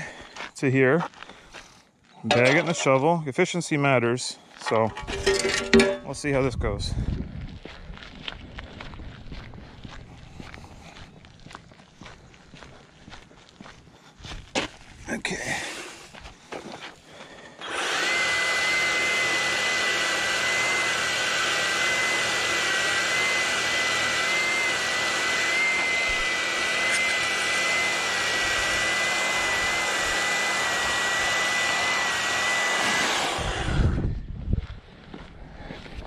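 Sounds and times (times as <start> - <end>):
power brush whining: 2.2 - 3.0, 4.6 - 6.2, 17.5 - 34.2.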